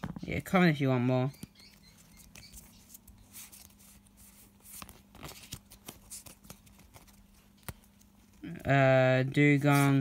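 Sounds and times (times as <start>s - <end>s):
trading cards rustling and clicking: 0.0s - 8.7s, 9.4s - 10.0s
low steady hum: 0.0s - 10.0s.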